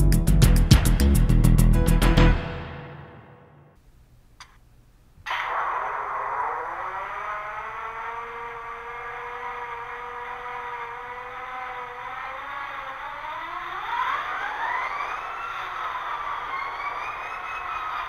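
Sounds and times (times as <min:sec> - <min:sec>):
model diesel engine sound: 0:07.5 - 0:18.0.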